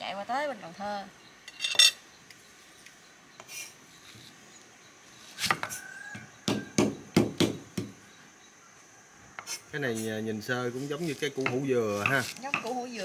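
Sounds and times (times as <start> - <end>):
kitchen utensils clattering: 1.5 - 2.0.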